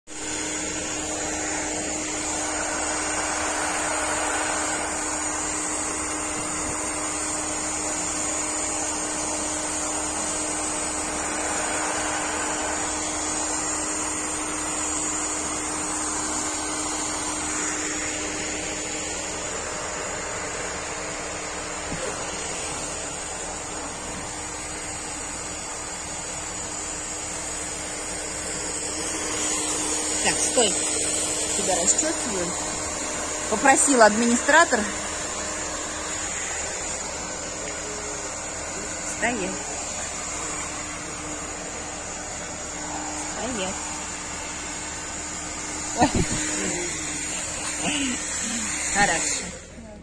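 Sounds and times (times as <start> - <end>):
hair dryer running: 0.1 - 50.0.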